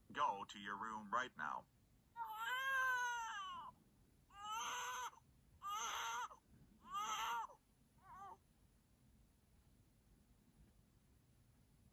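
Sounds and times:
cartoon boy crying: 2.2 - 3.6, 4.4 - 5.1, 5.7 - 6.3, 6.9 - 7.5.

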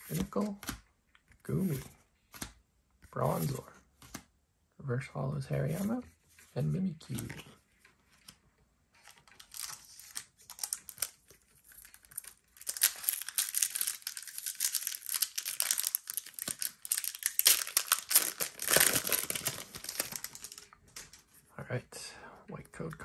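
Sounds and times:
foil wrapper crinkling and tearing: 9.3 - 21.1.

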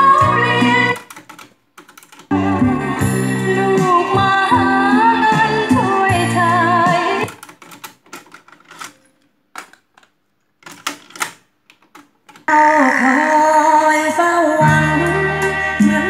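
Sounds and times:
music from cassette deck: 0.0 - 8.9, 13.9 - 16.0
tape transport clicking and clatter: 0.6 - 2.4, 7.2 - 12.5.

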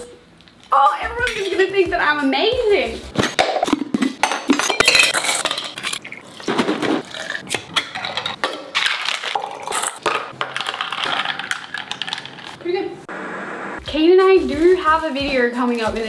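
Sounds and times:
liquid pouring into shaker: 10.4 - 12.5.

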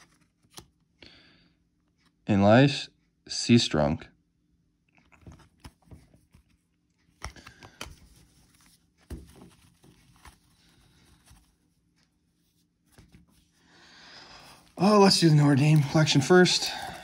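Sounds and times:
handling trading cards: 0.0 - 1.0, 5.0 - 13.6, 14.3 - 17.0.

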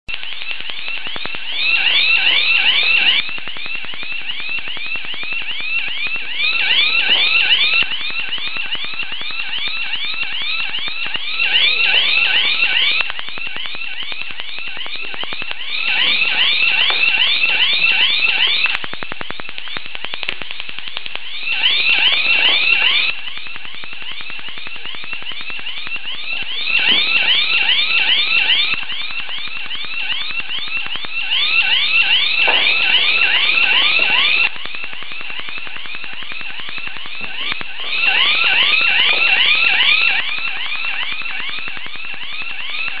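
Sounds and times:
high-pitched alarm warble: 0.1 - 43.0.

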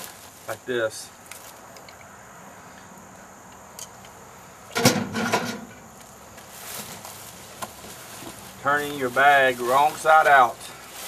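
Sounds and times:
plastic bag rustling and crinkling: 0.0 - 1.6, 6.3 - 11.0.

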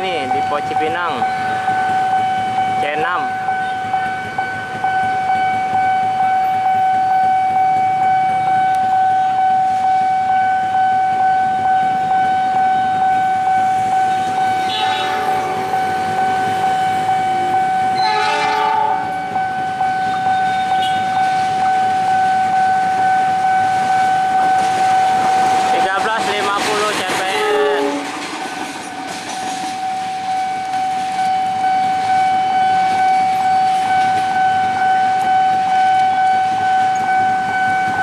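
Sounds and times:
level crossing warning alarm: 0.0 - 38.0
locomotive horn: 3.5 - 25.6, 27.2 - 28.2.

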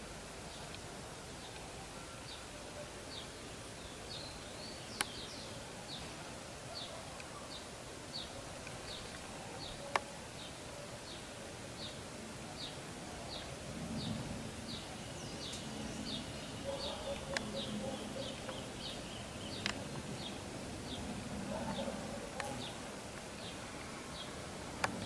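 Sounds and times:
faint low hum: 0.0 - 25.0
sharp clicks: 17.1 - 17.6, 19.5 - 20.1, 24.7 - 25.0.

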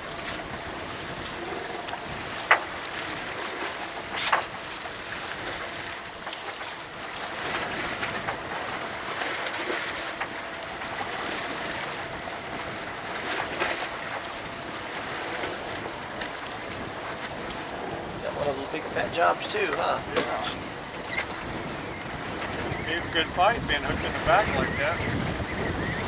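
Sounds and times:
sea water washing around boat: 0.0 - 26.0
wind buffeting microphone: 10.1 - 26.0.

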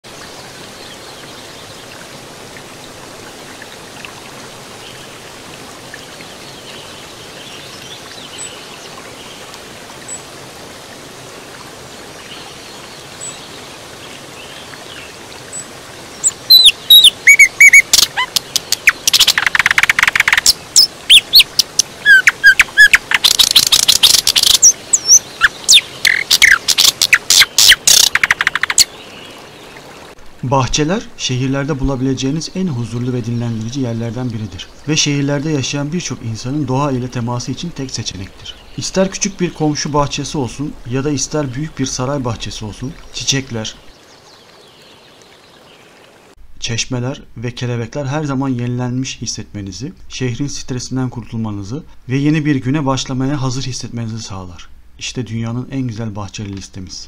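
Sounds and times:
faint hiss: 0.1 - 57.0
songbird trills and chirps: 14.4 - 29.4.

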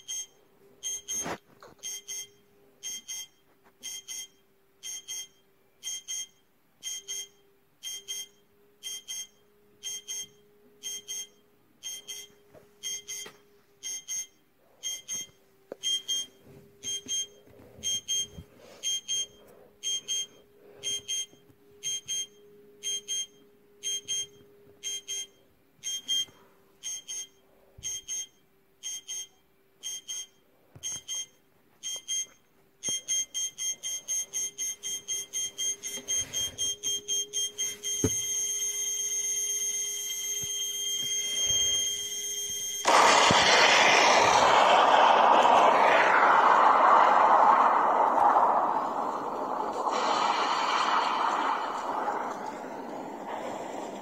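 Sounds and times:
countdown timer beeping: 1.8 - 30.4.

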